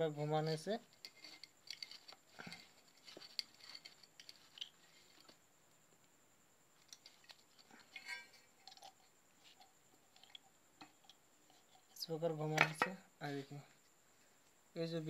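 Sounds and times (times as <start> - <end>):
small metal clicks and scrapes: 0.4 - 5.4, 6.8 - 12.0.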